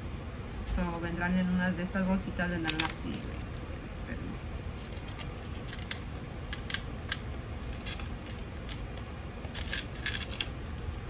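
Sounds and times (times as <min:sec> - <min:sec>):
packaging crinkling and rustling: 0:04.8 - 0:11.0.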